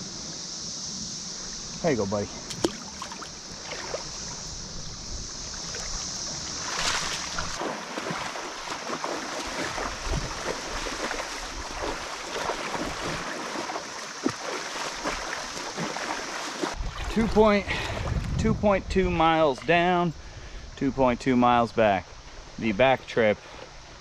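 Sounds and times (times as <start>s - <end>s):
creek water splashing: 0.0s - 18.4s.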